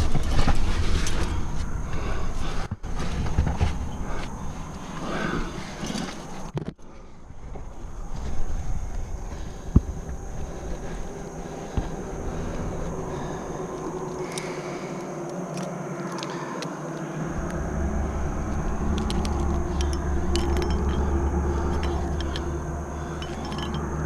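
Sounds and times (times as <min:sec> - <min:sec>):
metallic clinks of climbing gear: 0:02.6 - 0:06.7, 0:15.3 - 0:24.0
wind buffeting microphone: 0:07.2 - 0:14.8.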